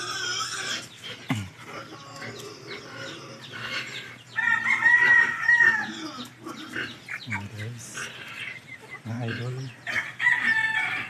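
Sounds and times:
chickens clucking: 0.0s - 11.0s
rooster crowing: 4.4s - 6.2s, 9.8s - 11.0s.

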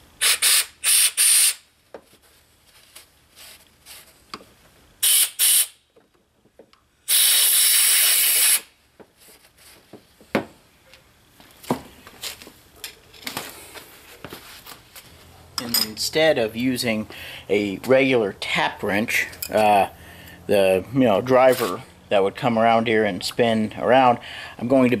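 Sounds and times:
compressed air blow gun hissing: 0.2s - 1.6s, 5.0s - 5.8s, 7.1s - 8.7s.

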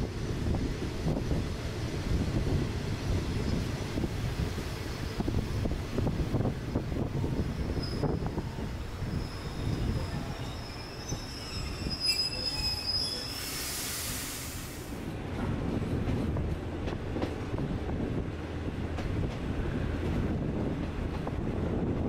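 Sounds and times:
train carriage rumbling on track: 0.0s - 22.0s
train wheels squealing on rails: 7.2s - 14.9s
burst of hiss: 13.3s - 15.0s.

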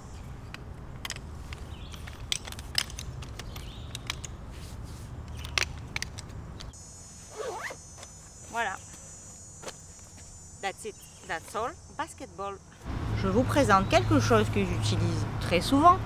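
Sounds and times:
crickets chirring: 0.0s - 14.8s
metal chair frame clicking and rattling: 1.0s - 4.4s.

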